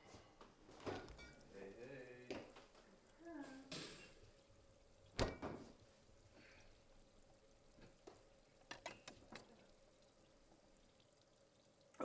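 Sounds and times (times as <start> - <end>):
refrigerator door thumping shut: 5.2 - 5.6.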